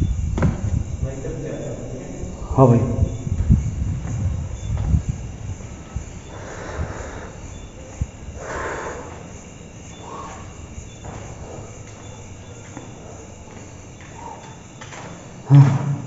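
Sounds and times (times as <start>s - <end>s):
faint high chirping: 1.0s - 14.9s
person breathing heavily: 5.8s - 10.8s, 14.1s - 14.6s.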